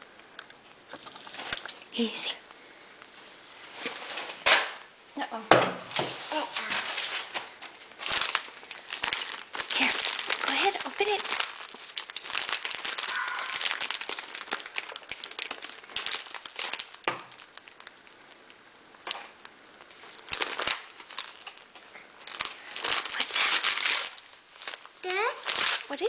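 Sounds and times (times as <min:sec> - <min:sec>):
wrapping paper crinkling: 0:06.1 - 0:26.0.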